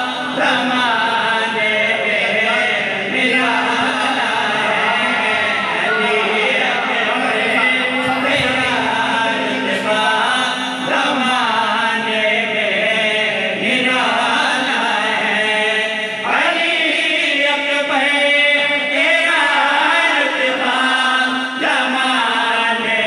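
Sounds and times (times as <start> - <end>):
man singing into a microphone: 0.0 - 23.0.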